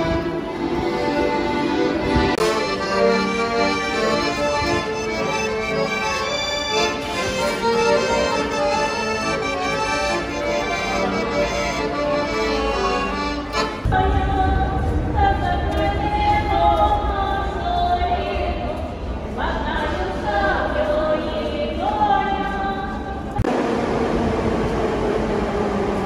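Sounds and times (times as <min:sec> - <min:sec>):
accordion playing a tune: 0:00.0 - 0:14.4.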